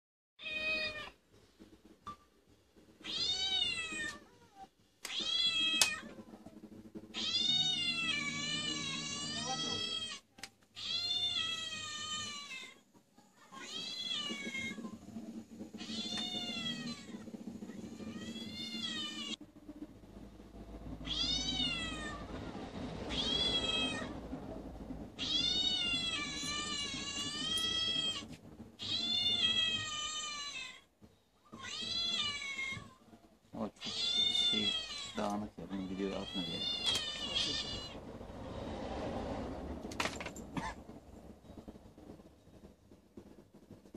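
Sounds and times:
recorded cat meows from speakers: 0.4s - 1.2s, 3.0s - 6.5s, 7.1s - 15.0s, 15.8s - 19.4s, 21.0s - 22.3s, 23.1s - 24.1s, 25.1s - 33.1s, 33.7s - 38.0s.

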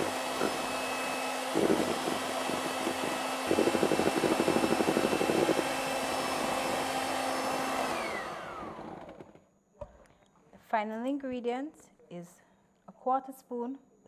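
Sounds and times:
electric hand mixer whining: 0.0s - 9.4s.

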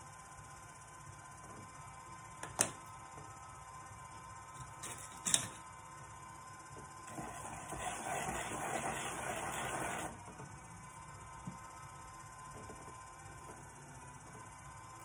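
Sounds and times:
pottery wheel whine: 0.0s - 15.0s
tool scraping wet clay: 7.1s - 10.2s.

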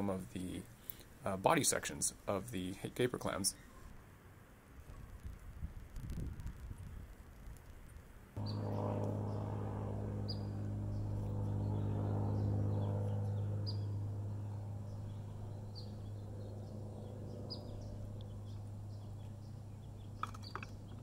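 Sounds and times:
low buzzy hum: 8.4s - 21.0s
small birds chirping: 8.4s - 21.0s.

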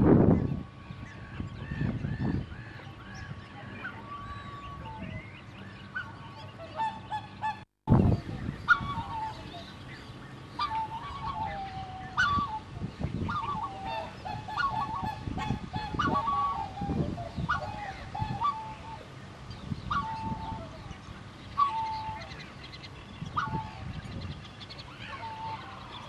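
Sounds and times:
waterfowl honking: 5.9s - 7.6s, 8.6s - 9.7s, 10.6s - 12.7s, 13.3s - 19.1s, 19.9s - 20.9s, 21.6s - 22.4s, 23.2s - 23.9s, 25.0s - 26.0s.

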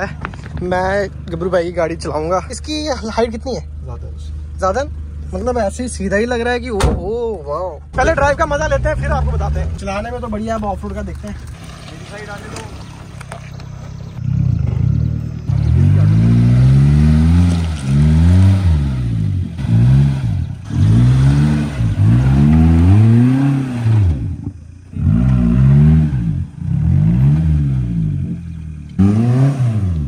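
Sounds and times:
car engine revving: 7.9s - 30.0s.

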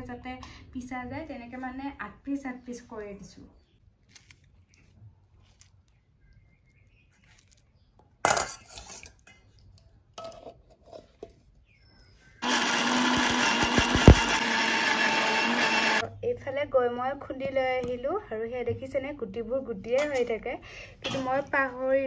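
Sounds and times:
metallic clatter in steel bowl: 8.2s - 9.4s
mixer grinder running: 12.4s - 16.0s.

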